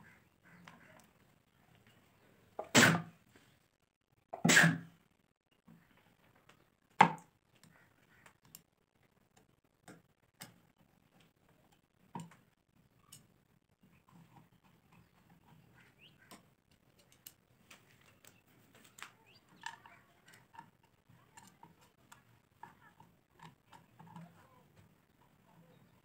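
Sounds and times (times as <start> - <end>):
screwdriver clicks and creaks: 7.5 - 13.3, 13.9 - 25.4.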